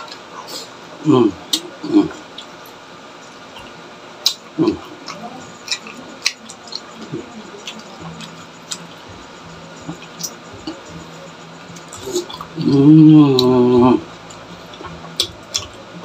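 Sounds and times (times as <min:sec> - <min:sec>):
person humming: 0:04.6 - 0:16.0
wet eating smacks and clicks: 0:05.0 - 0:08.9, 0:14.7 - 0:15.8.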